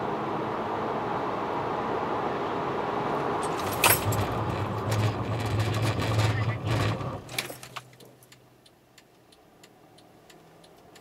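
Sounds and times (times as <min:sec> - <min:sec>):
car braking hard: 0:03.0 - 0:07.8
tyre and wind noise: 0:03.4 - 0:08.0.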